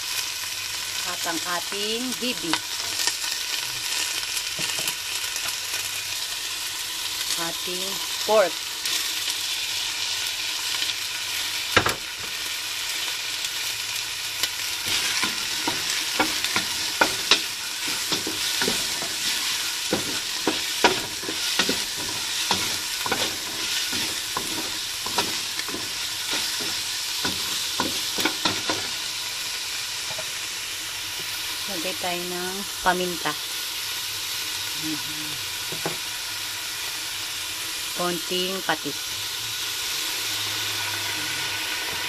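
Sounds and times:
meat sizzling in a pan: 0.0s - 42.0s
utensil scraping a metal pan: 14.9s - 29.0s.

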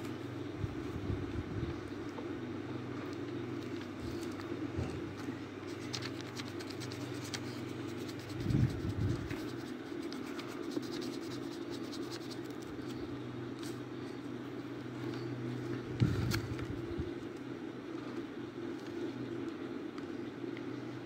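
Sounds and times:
steady low hum: 0.0s - 21.0s
pencil scratching on paper: 5.7s - 12.6s.

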